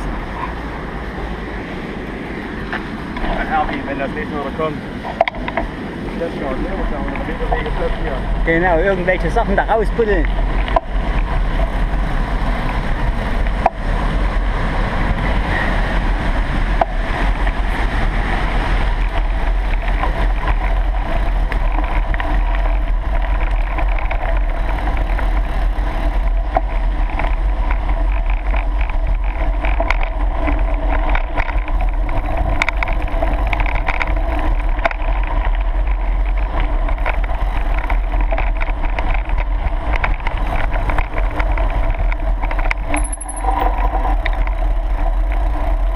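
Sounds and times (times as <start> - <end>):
bike rattling and clicking: 0.0 - 45.9
wind rumble on microphone: 0.0 - 45.9.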